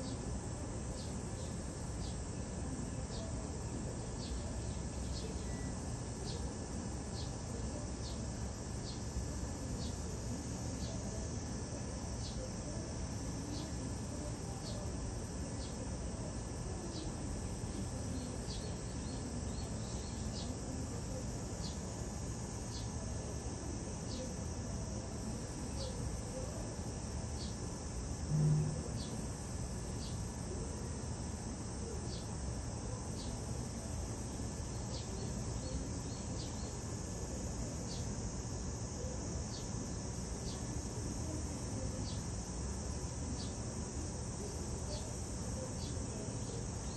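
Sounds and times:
insect chirping: 0.0s - 46.9s
steady high hiss: 0.0s - 46.9s
brief low hum: 28.3s - 29.1s.

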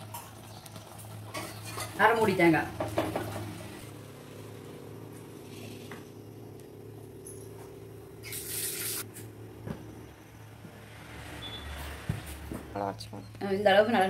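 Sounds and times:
steady low hum: 3.6s - 11.2s.

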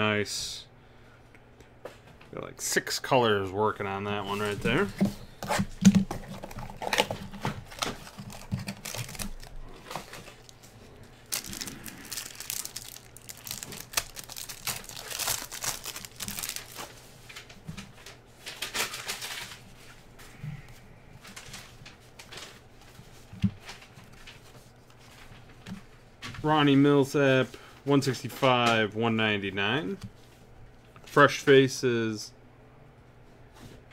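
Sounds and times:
foil wrapper tearing and crinkling: 5.8s - 10.6s, 11.2s - 17.0s, 18.5s - 19.6s.

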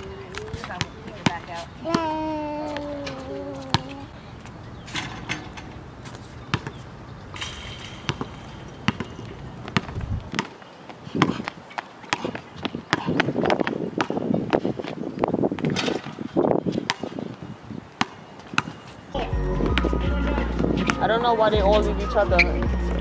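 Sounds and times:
basketball bouncing on hard court: 6.5s - 6.8s, 7.5s - 10.6s, 11.2s - 14.6s, 16.8s - 17.2s, 18.0s - 18.8s.

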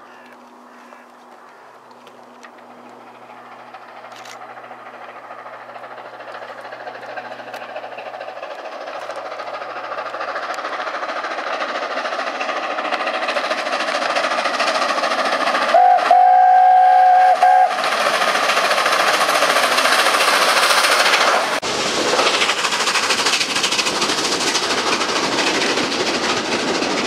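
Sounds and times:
steam locomotive running: 0.0s - 27.0s
steam chime whistle: 15.7s - 17.8s.

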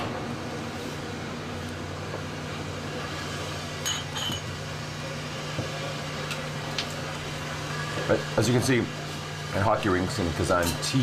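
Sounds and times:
steady low hum: 0.0s - 11.0s
drinking glasses clinking: 3.8s - 4.6s.

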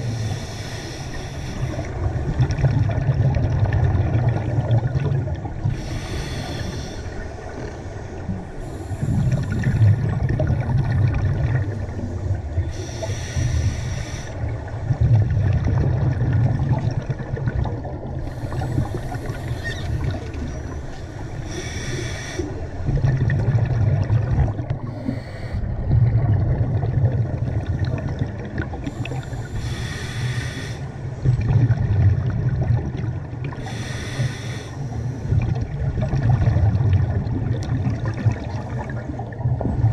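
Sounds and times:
exhaled bubbles rumbling: 0.0s - 0.5s, 1.6s - 39.9s
regulator inhale hiss: 0.0s - 2.1s, 5.7s - 9.7s, 12.1s - 14.5s, 18.2s - 22.8s, 24.8s - 25.7s, 28.8s - 31.2s, 33.5s - 35.3s.

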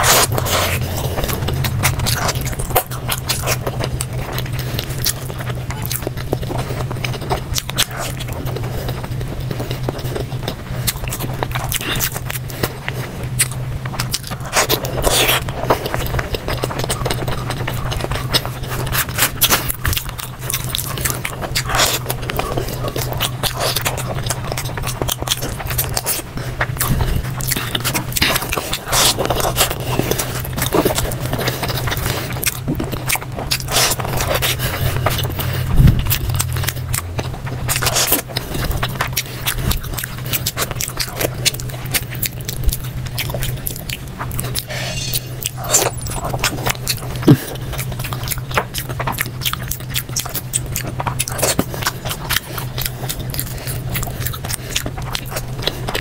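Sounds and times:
steady low hum: 0.0s - 56.0s
wet smacking and chewing: 0.0s - 56.0s.

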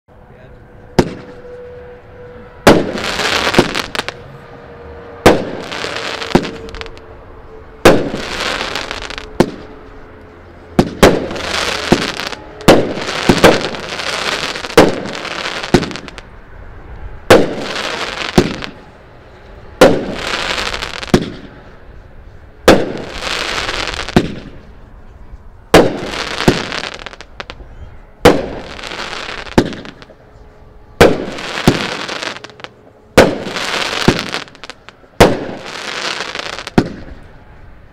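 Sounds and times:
firework shots bang and hiss: 1.0s - 1.4s, 2.7s - 4.1s, 5.2s - 6.9s, 7.8s - 9.7s, 10.8s - 16.2s, 17.3s - 18.8s, 19.8s - 21.6s, 22.7s - 24.6s, 25.7s - 27.6s, 28.2s - 30.1s, 31.0s - 32.5s, 33.2s - 37.2s.

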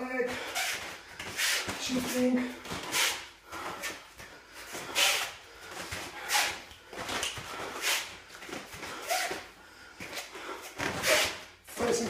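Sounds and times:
sharp hissing breaths: 2.8s - 8.2s.

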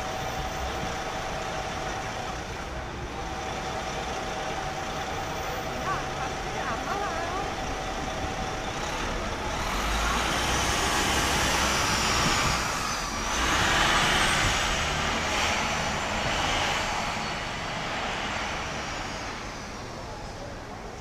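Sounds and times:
heavy vehicle rumble: 0.0s - 21.0s
vehicles passing: 0.0s - 21.0s.

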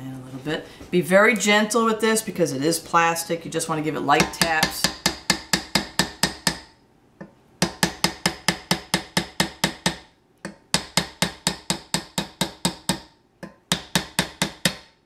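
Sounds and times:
mallet tapping wooden dowel: 4.2s - 15.0s.

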